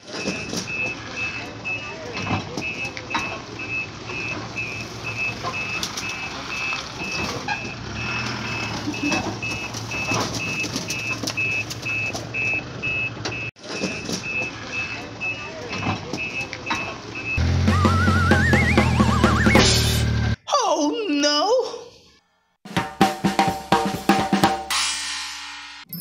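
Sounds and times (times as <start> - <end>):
high-pitched toy warning beeps: 0.2 - 19.7.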